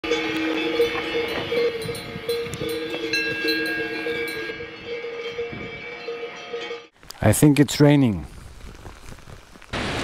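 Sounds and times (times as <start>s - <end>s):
cowbells ringing: 0.0s - 7.0s.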